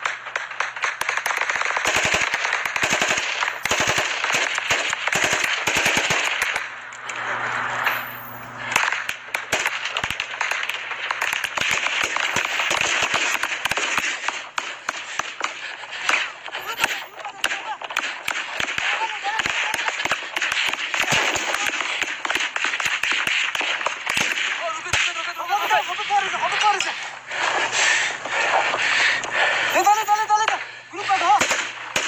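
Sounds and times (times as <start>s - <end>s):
rifles firing in bursts: 0.0s - 6.8s, 7.9s - 32.0s.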